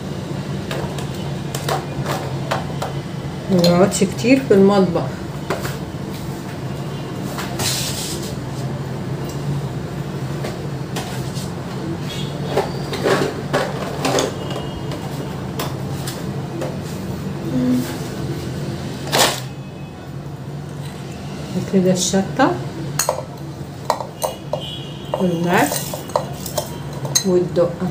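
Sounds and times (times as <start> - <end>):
utensils clicking and knocking: 23.0 - 27.3.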